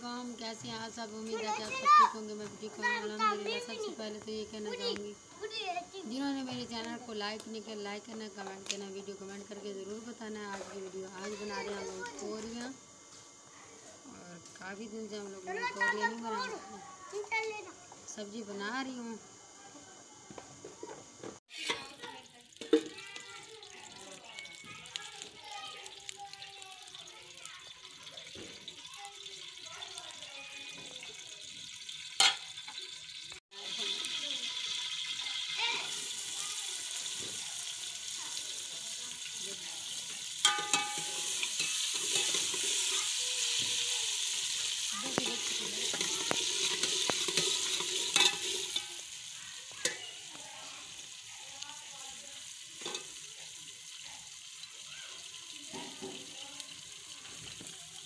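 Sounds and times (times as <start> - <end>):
curry sizzling in a pot: 0.0 - 58.0
wood fire hissing: 0.0 - 58.0
metal ladle clinking on pot: 32.2 - 32.5, 40.4 - 42.7, 45.8 - 49.0.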